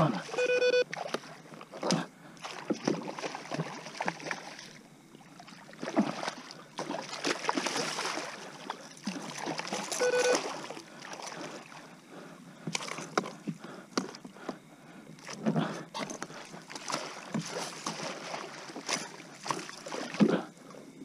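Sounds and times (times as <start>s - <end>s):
water splashing from thrashing fish: 2.4s - 11.9s, 12.7s - 13.2s, 16.4s - 20.5s.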